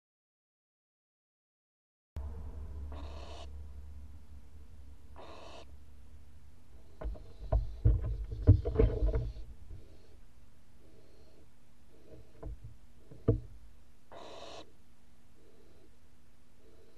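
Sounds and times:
owl hissing screeches: 2.9s - 3.5s, 5.2s - 5.7s, 14.1s - 14.7s
owls shuffling on wood: 6.8s - 10.2s.

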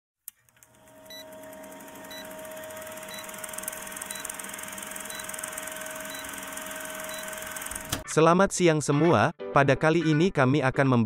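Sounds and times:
film projector whirring and clattering: 0.3s - 8.0s
short high beeps: 5.1s - 7.6s.

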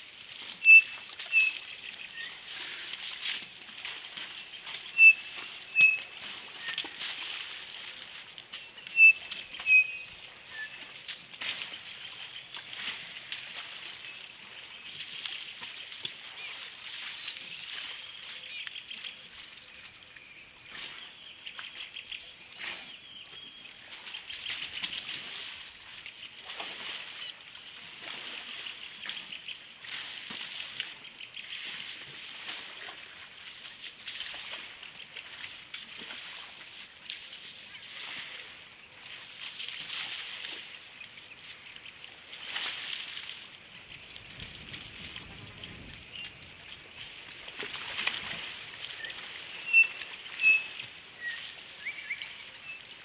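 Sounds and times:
elephants splashing in mud: 44.3s - 52.1s.

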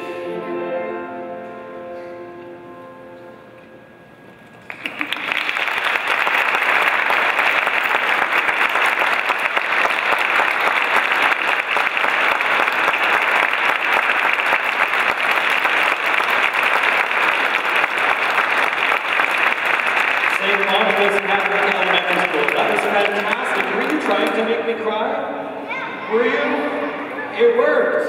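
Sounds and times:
crowd clapping: 4.6s - 24.7s.

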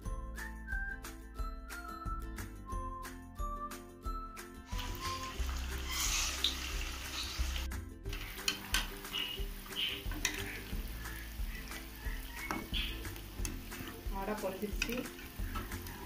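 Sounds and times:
light background music: 0.0s - 16.0s
food sizzling in hot oil: 4.6s - 16.0s.

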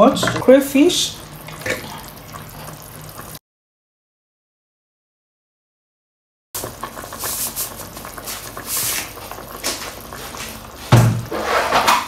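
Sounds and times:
soup bubbling in a pot: 0.0s - 3.4s, 6.6s - 12.0s.

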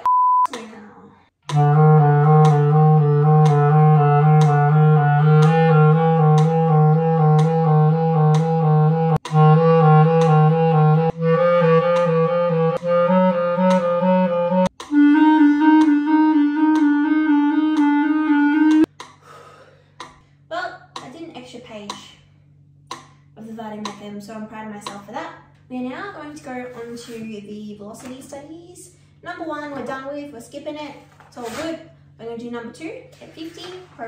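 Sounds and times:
clarinet playing: 1.5s - 18.9s
metronome clicks: 1.5s - 19.2s.

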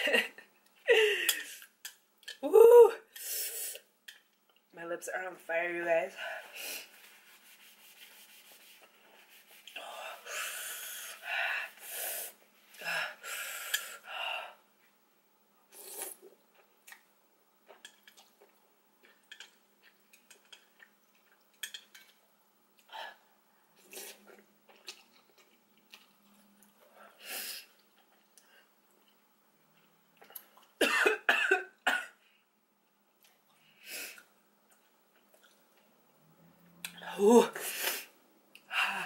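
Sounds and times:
chewing with small clicks: 17.7s - 22.2s, 24.2s - 26.9s, 27.7s - 30.8s, 32.8s - 33.6s, 34.2s - 36.2s.

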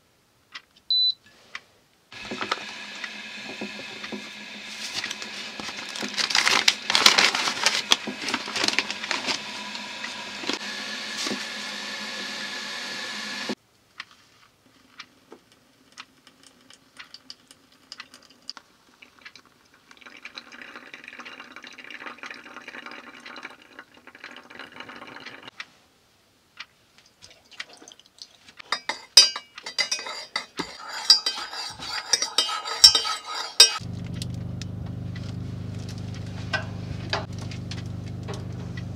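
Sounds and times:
paper coffee filter rustling: 4.6s - 10.6s
plastic bag crinkling: 5.6s - 9.5s
hot water pouring onto coffee: 16.2s - 25.5s.

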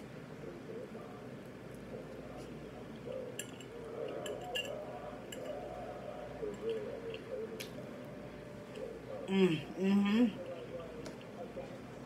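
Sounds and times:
soft chewing: 0.4s - 12.0s.

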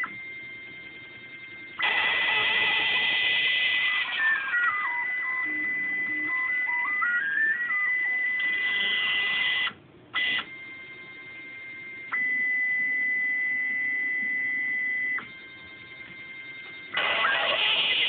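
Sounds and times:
stepper motors whining: 16.6s - 18.0s.

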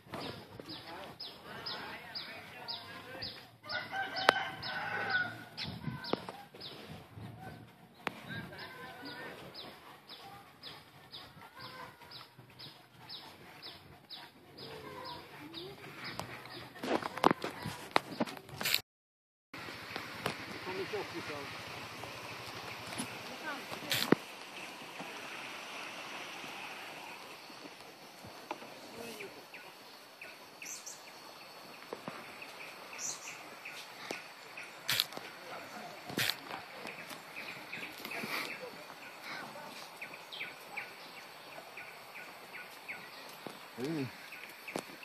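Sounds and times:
steady hiss: 19.6s - 45.0s
bird chirping: 28.9s - 45.0s.

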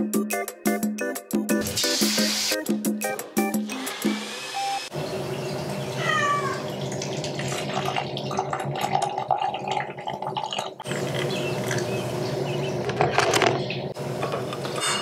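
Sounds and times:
water pouring into teapot: 6.8s - 11.8s.

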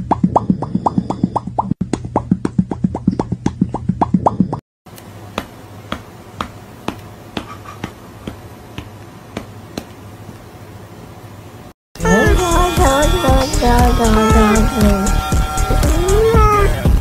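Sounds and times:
popping mouth sounds: 0.0s - 4.6s
steady low hum: 4.9s - 17.0s.

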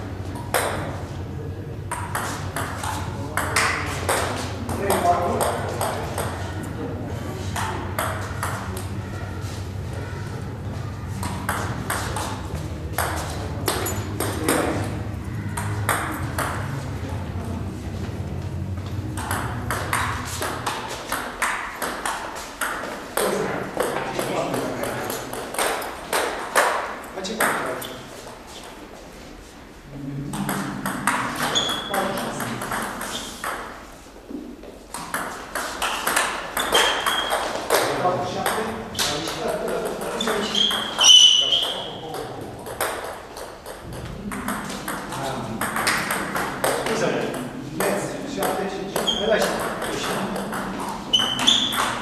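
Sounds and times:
table tennis balls clicking: 0.3s - 1.0s, 1.9s - 6.6s, 7.5s - 9.0s, 11.1s - 16.8s, 19.0s - 28.0s, 30.3s - 52.0s
steady low hum: 5.7s - 20.9s
table tennis ball clicking: 49.0s - 52.0s.

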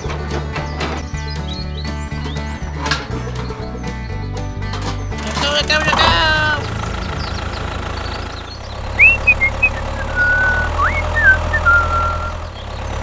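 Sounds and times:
tractor engine idling: 0.0s - 13.0s
high whistle-like chirps: 9.0s - 12.4s.

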